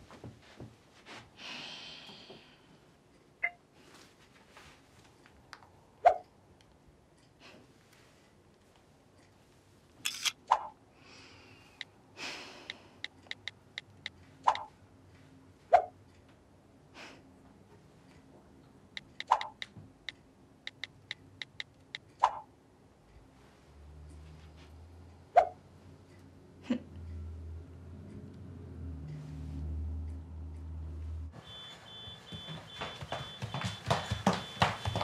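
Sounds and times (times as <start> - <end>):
camera shutter click: 10.1 - 10.4.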